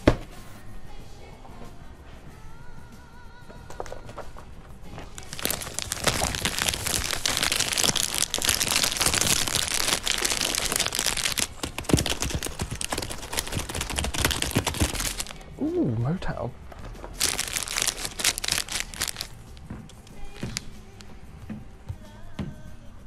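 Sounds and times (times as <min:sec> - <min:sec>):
plastic record sleeves rustling: 0:05.0 - 0:15.4, 0:17.0 - 0:20.7
records knocking together: 0:05.3 - 0:15.3.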